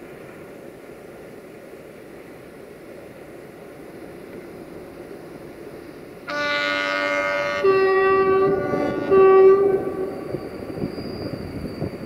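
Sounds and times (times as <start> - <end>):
locomotive air horn: 6.3 - 10.4.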